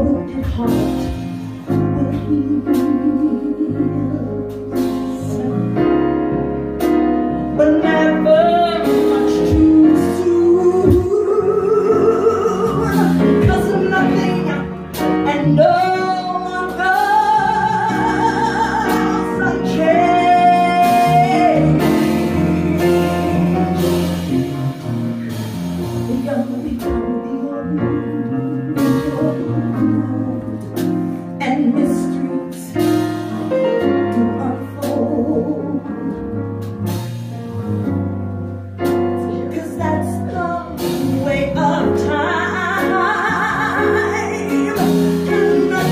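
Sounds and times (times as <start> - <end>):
woman singing: 0.0 - 6.2, 7.6 - 24.4, 26.1 - 36.3, 39.2 - 45.9
jazz blues band: 0.0 - 45.9
cymbals and drums: 40.8 - 41.6.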